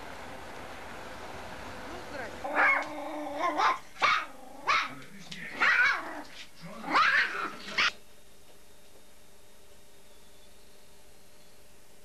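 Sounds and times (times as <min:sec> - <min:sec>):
dog barking: 0:02.5 - 0:06.2, 0:06.9 - 0:08.0.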